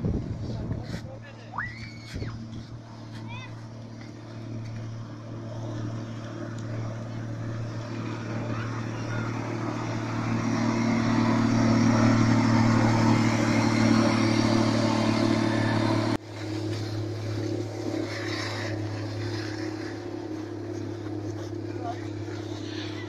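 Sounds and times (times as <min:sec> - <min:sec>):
quieter engine drone: 0:00.0 - 0:23.0
snow groomer diesel engine: 0:00.5 - 0:23.0.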